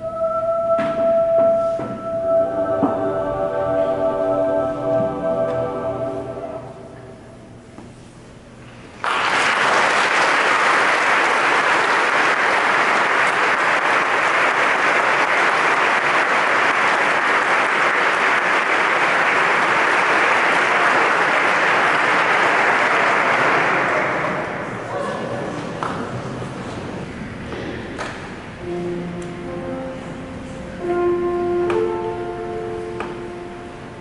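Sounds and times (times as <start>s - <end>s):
choir chord reverberating: 0.0s - 7.6s, 28.6s - 34.0s
audience applause: 9.0s - 25.0s.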